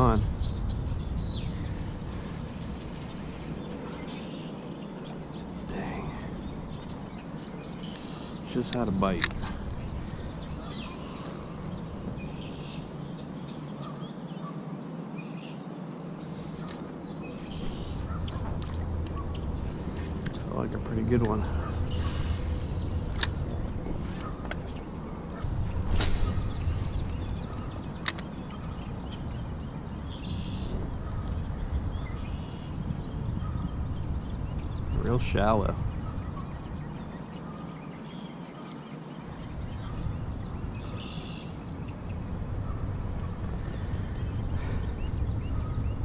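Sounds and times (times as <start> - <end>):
birds chirping: 0.0 - 46.0
steady low background noise: 0.0 - 46.0
wind rumble on microphone: 0.0 - 46.0
sharp click: 28.0 - 28.3.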